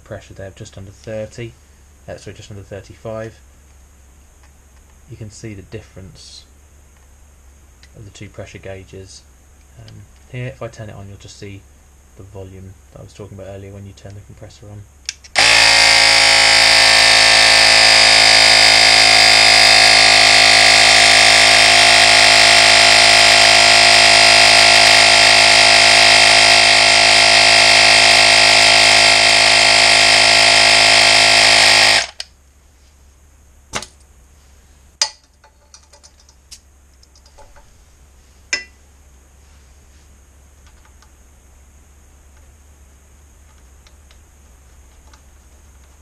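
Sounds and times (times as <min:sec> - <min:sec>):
small air compressor running: 0:15.3 - 0:32.2.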